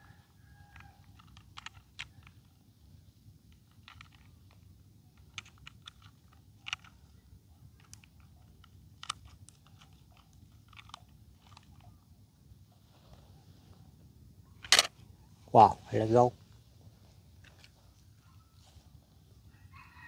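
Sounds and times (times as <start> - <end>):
plastic toy clicks and taps: 0.7 - 2.4, 7.8 - 11.9.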